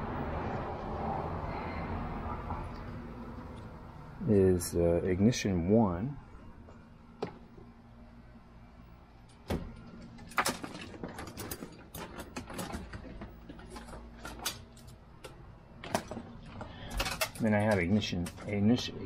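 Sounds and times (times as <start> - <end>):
faint steady hum: 0.0 - 19.0
wires clicking and rustling: 9.2 - 19.0.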